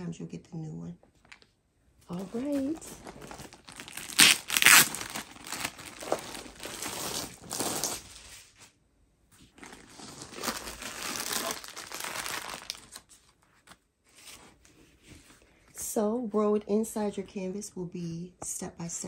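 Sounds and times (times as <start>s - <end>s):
plastic packaging crinkling: 2.1s - 8.4s, 9.4s - 13.8s.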